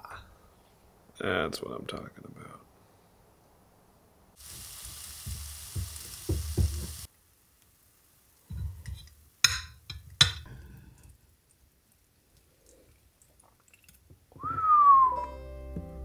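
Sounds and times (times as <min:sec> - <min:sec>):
beans sizzling in a skillet: 0:04.4 - 0:12.5.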